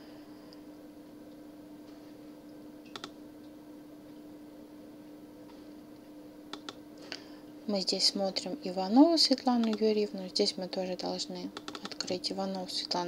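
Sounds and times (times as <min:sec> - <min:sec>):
faint electrical hum: 0:00.0 - 0:13.0
computer mouse double click: 0:02.9 - 0:03.1, 0:11.6 - 0:12.1.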